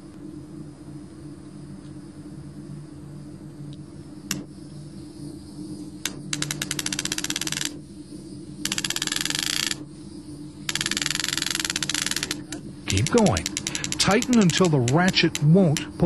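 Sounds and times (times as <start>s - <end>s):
rope ratchet clicking: 6.0s - 7.8s, 8.6s - 9.8s, 10.7s - 16.0s.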